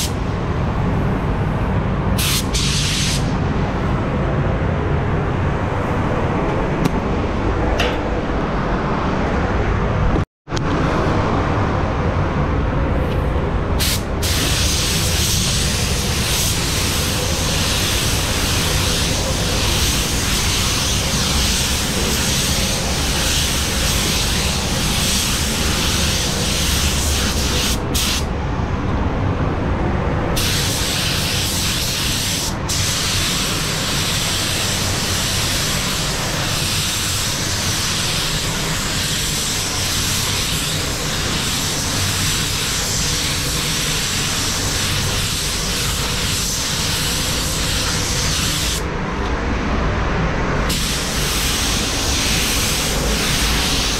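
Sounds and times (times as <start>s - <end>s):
ventilation hum: 0.0s - 53.9s
paint spray gun hissing: 50.7s - 53.9s.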